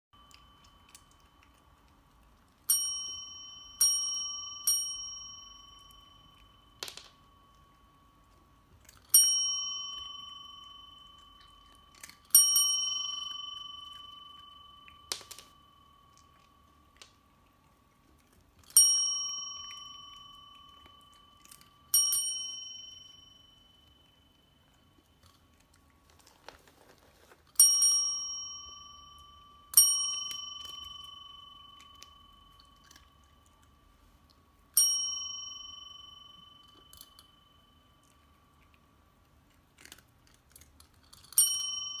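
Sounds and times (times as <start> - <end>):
desk bell ringing: 2.7 - 17.2, 18.8 - 25.2, 27.6 - 33.7, 34.8 - 38.2, 41.4 - 42.0.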